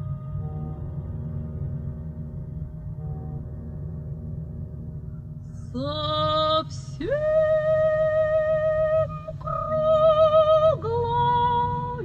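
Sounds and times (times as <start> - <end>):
sustained orchestral accompaniment: 0.0 - 5.3
operatic soprano singing: 5.7 - 12.0.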